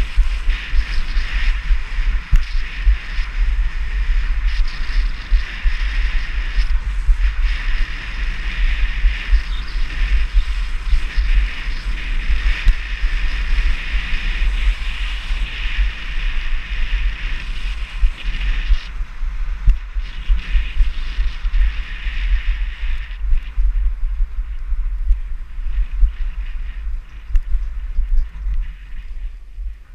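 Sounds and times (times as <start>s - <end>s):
skis hissing on packed snow: 0.0s - 23.2s
wind buffeting microphone: 0.0s - 29.9s.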